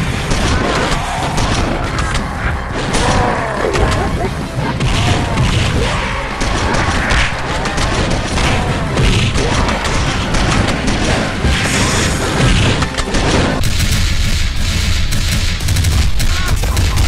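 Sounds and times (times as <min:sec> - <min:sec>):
explosions: 0:00.0 - 0:17.0
gunfire: 0:00.0 - 0:17.0
warbling sweeps: 0:00.7 - 0:13.7.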